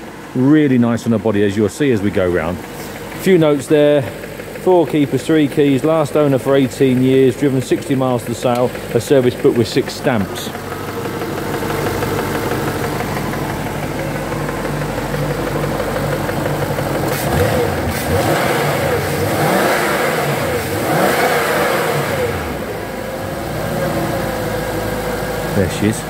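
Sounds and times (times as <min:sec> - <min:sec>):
car engine revving: 0:02.1 - 0:26.0
light engine ticking: 0:02.3 - 0:22.6.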